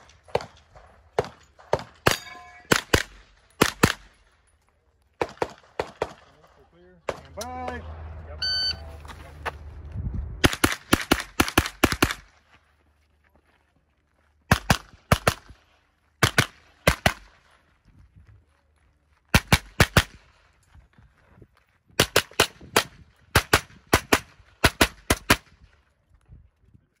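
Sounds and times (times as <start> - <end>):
pistol shots: 0.0 - 4.2, 5.2 - 6.4, 10.4 - 12.4, 14.5 - 15.6, 16.2 - 17.4, 19.3 - 20.3, 22.0 - 25.5.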